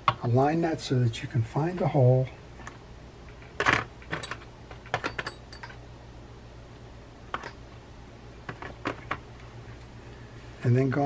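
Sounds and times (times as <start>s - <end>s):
small parts clicking and tapping: 2.6s - 5.8s.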